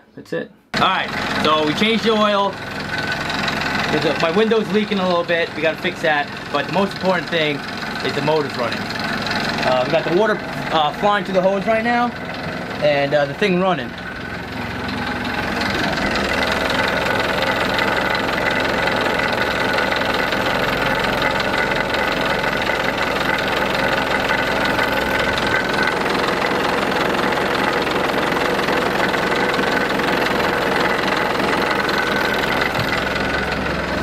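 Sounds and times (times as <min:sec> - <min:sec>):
diesel engine idling: 0:00.8 - 0:34.0.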